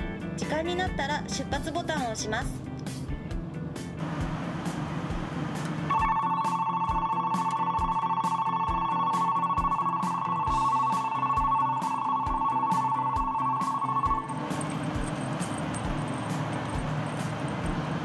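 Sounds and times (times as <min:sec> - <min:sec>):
electric departure bell ringing: 0:05.9 - 0:18.0.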